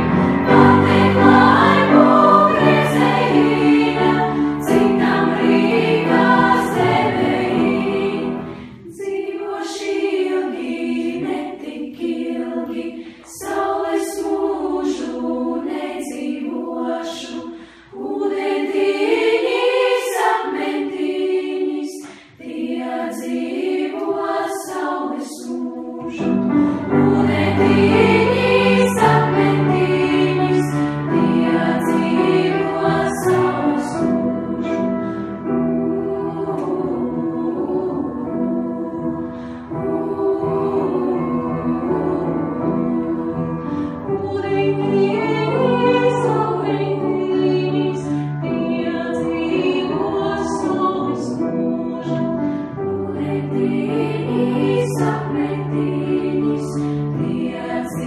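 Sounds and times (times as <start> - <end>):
girls choir singing: 0.0 - 58.0.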